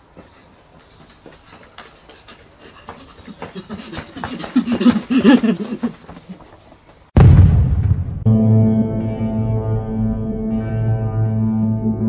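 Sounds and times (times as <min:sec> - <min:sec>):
running footsteps on asphalt: 0:00.0 - 0:07.1
heavy breathing: 0:00.1 - 0:06.7.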